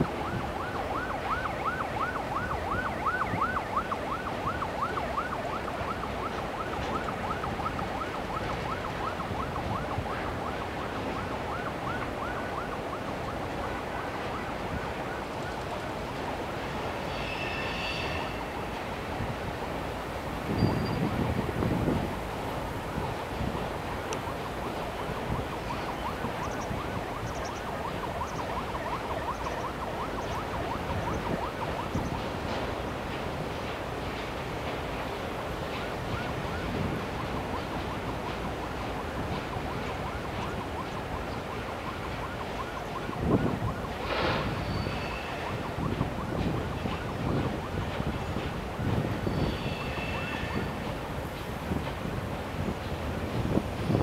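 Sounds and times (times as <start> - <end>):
wind noise on microphone: 0.0 - 5.0, 18.0 - 54.0
siren yelping: 0.0 - 15.6, 23.0 - 32.5, 36.0 - 51.0
freight train rolling over bridge: 0.0 - 54.0
steady background noise: 0.0 - 54.0
wagons squeaking: 49.2 - 50.8.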